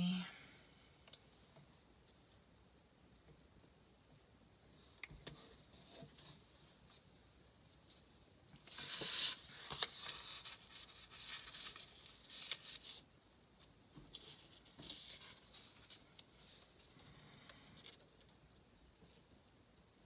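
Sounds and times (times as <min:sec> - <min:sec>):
paper rustling and crinkling: 0:08.6 - 0:18.1.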